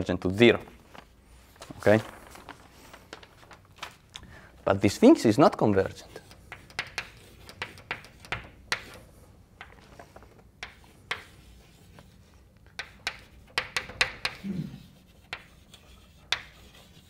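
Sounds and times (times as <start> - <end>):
chalk tapping and scratching: 5.6 - 9.8, 10.6 - 17.0.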